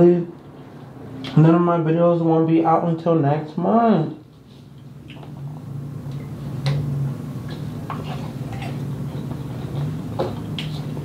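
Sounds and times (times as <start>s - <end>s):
steady low hum: 0.0s - 11.0s
chewing: 7.4s - 11.0s.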